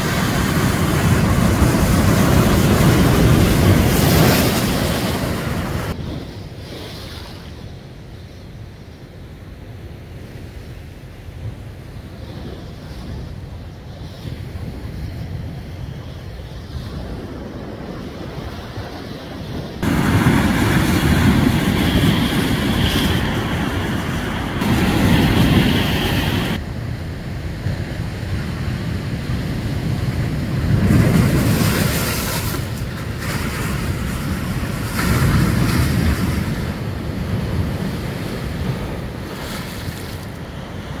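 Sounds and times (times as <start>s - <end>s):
sea waves breaking on rocks: 0.0s - 6.0s, 19.8s - 26.6s, 29.2s - 41.0s
wind buffeting microphone: 0.0s - 7.6s, 11.2s - 41.0s.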